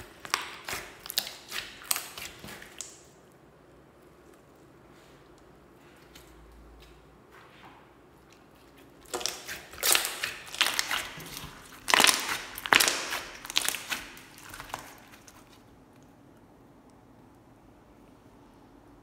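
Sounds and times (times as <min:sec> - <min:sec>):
slime clicking and popping: 0:00.0 - 0:03.1, 0:09.0 - 0:15.0.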